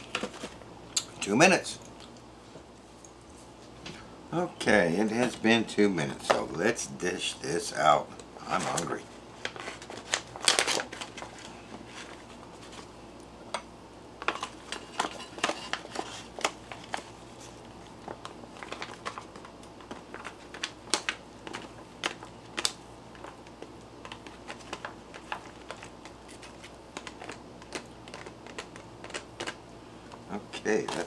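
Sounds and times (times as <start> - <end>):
foil pouch crinkling: 8.5 - 12.9, 14.3 - 29.6.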